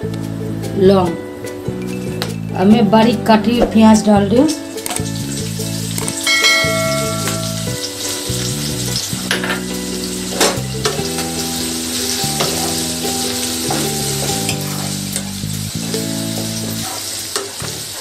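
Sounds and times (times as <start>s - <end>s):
onion sizzling in hot oil: 4.6s - 18.0s.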